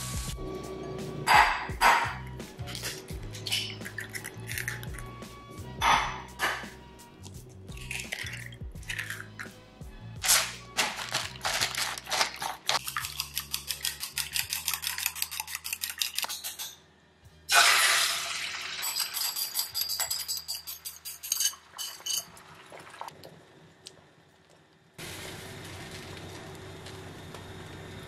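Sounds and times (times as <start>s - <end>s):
chopsticks beating eggs in bowl: 11.0s - 16.7s
egg sizzling in hot pan: 17.5s - 19.2s.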